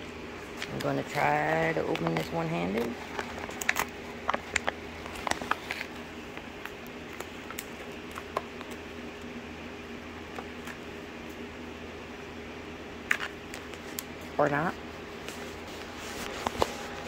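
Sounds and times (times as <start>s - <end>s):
faint steady hum: 0.0s - 17.0s
package crinkling: 0.5s - 8.8s
package clicks: 3.2s - 8.8s.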